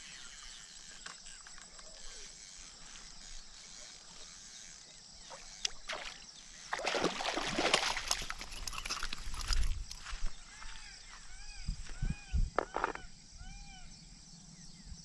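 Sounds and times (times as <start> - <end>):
fish thrashing and splashing: 5.7 - 10.0.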